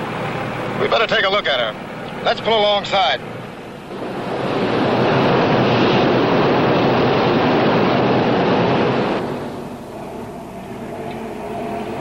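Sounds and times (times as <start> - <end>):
ship engines droning: 0.0 - 12.0
rush of water and spray: 2.2 - 10.4.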